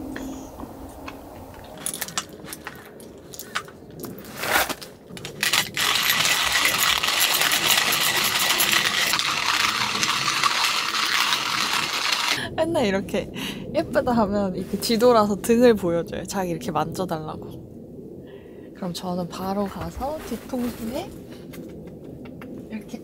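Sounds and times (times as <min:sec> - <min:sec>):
coffee grinder crunching: 0:04.4 - 0:12.4
coffee beans rattling: 0:04.7 - 0:12.4.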